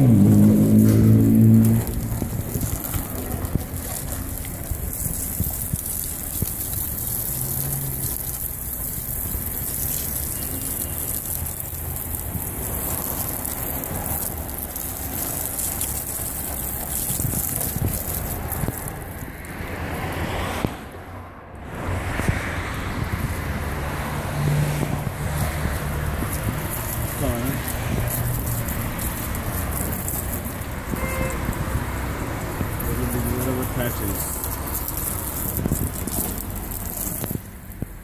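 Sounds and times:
hose water spraying on car: 0.0s - 38.0s.

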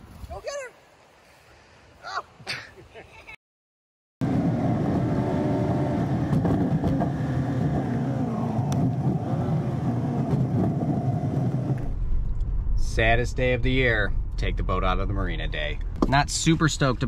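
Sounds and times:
vehicle engine and road noise: 4.2s - 17.0s.

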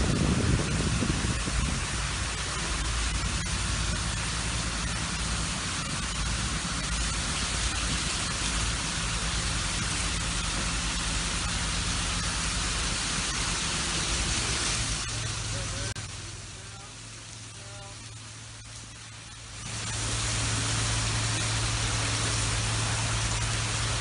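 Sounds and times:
low steady hum: 0.0s - 24.0s
water jetting from fire hose: 0.0s - 24.0s.

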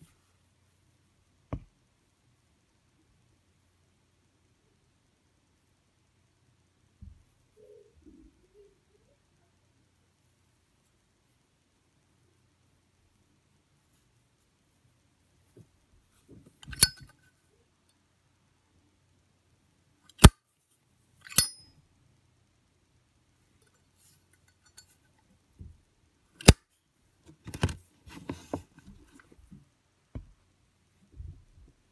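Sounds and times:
lighter lid clicking metallically: 21.3s - 21.6s
soft handling noises: 27.1s - 31.9s.

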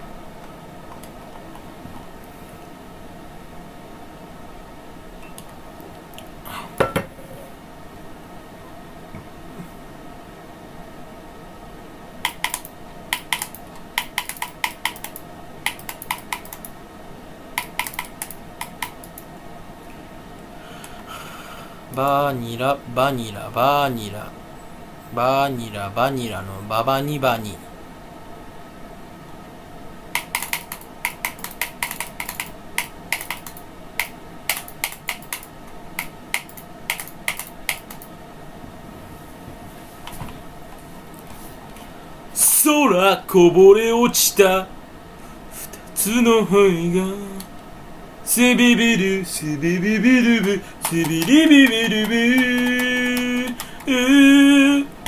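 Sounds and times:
faint steady hum: 0.0s - 55.0s
keyboard typing: 12.2s - 16.8s, 17.6s - 19.3s, 30.2s - 38.1s, 50.4s - 54.2s.

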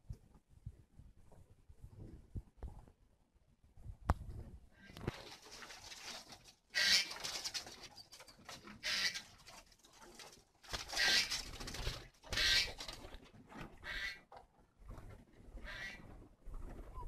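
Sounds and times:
doves cooing: 10.8s - 13.1s.

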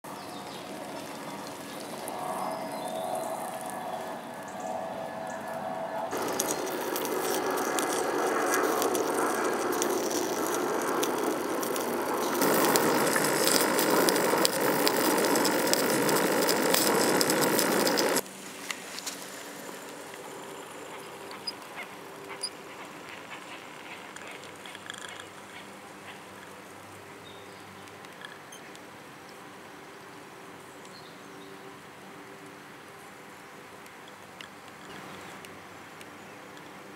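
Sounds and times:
steam engine hissing and rattling: 6.1s - 25.0s.

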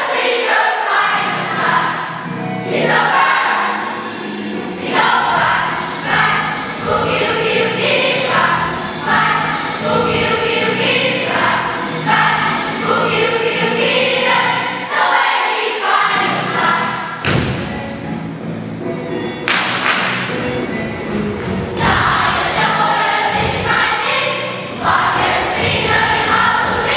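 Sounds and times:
children's choir singing: 0.0s - 17.8s, 19.4s - 26.9s
rhythmic instrumental accompaniment: 16.0s - 26.9s
single thump: 17.2s - 17.7s.

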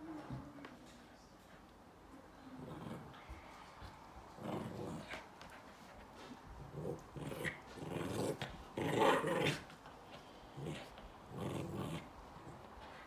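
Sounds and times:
small dog play growling: 2.4s - 13.0s.

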